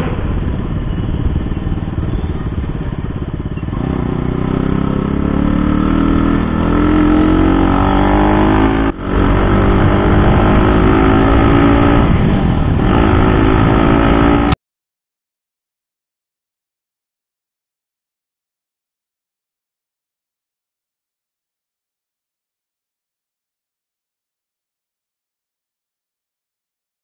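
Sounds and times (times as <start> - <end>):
motorcycle engine accelerating: 0.0 - 14.6.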